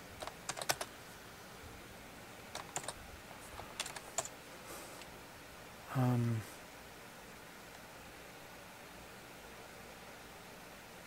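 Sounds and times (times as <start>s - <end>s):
typing on computer keyboard: 0.2s - 0.9s, 2.5s - 3.0s, 3.8s - 4.3s.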